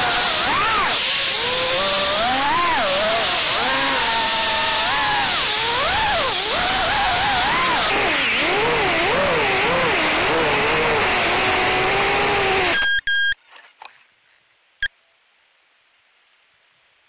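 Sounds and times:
drone motors whining: 0:00.0 - 0:13.4
high beeps: 0:12.7 - 0:13.4.

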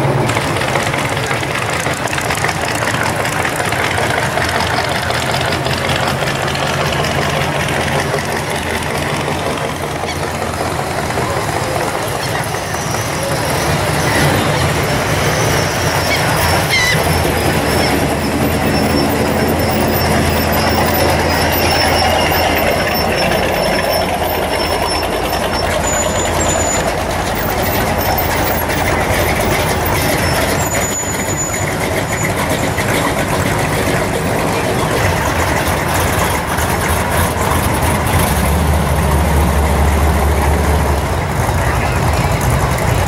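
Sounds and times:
car exhausts rumbling: 0:00.0 - 0:43.0
pickup truck engine rumble: 0:00.0 - 0:43.0.

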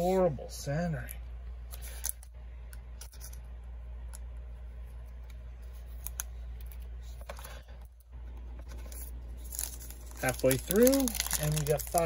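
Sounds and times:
steady low hum: 0:00.0 - 0:12.0
plastic sleeve rustling: 0:04.9 - 0:12.0.

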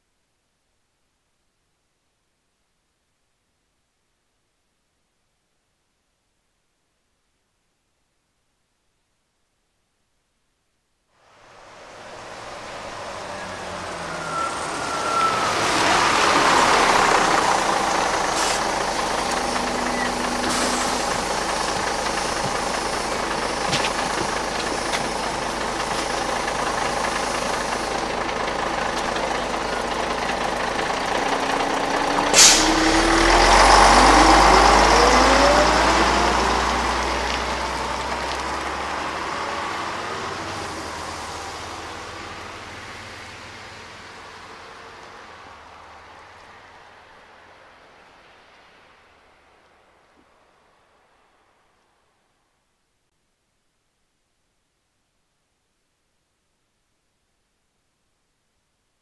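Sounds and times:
vehicles rushing past: 0:11.3 - 0:51.6.

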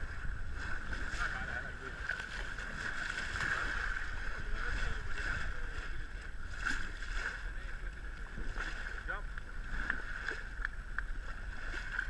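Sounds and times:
motorboat engine running: 0:00.0 - 0:12.0
water rushing along hull: 0:00.0 - 0:12.0.

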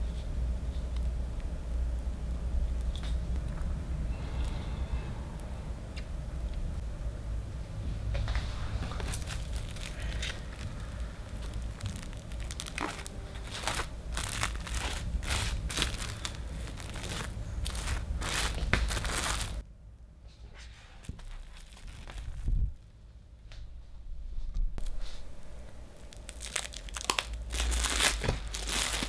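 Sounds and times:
plastic cling film crinkling: 0:08.6 - 0:19.6, 0:21.0 - 0:22.8, 0:24.8 - 0:29.0.

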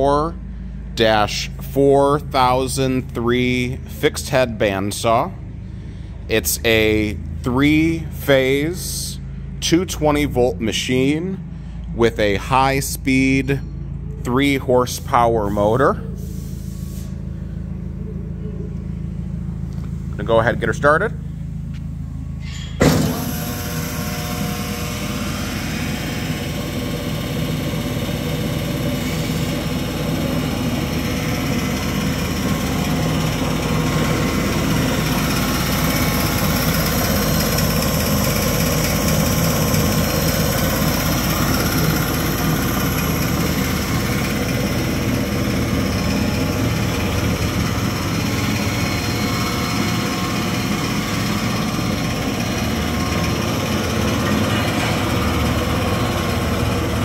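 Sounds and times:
band saw running idle: 0:22.2 - 0:57.0.

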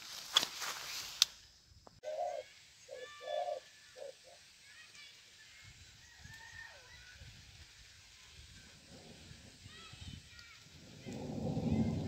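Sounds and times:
dove cooing: 0:02.0 - 0:04.2.

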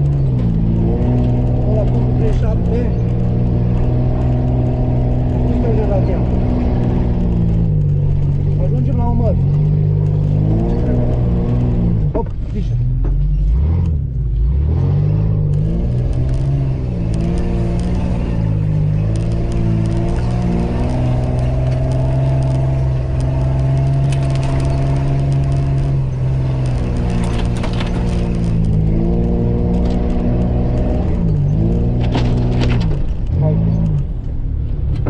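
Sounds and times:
car engine revving: 0:00.0 - 0:35.0
knocks and clatter: 0:15.5 - 0:35.0.

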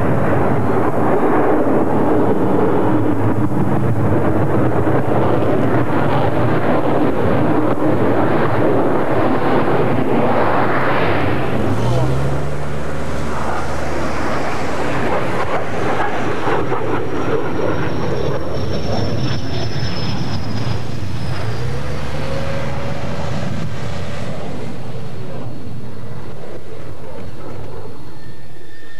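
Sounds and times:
jet engine noise: 0:00.0 - 0:28.9
thin high whine: 0:17.4 - 0:26.0.

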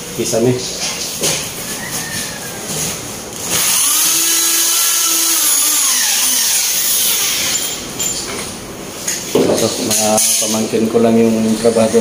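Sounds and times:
power tool motor whine: 0:03.4 - 0:07.6.

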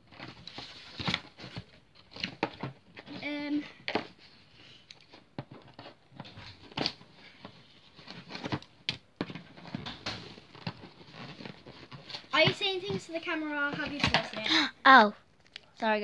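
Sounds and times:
plastic packaging crinkling: 0:05.0 - 0:12.4.

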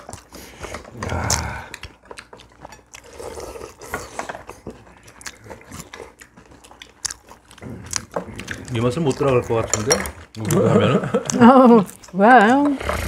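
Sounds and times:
chewing: 0:00.0 - 0:13.0
cutlery clicking against ceramic bowls: 0:08.0 - 0:10.6.

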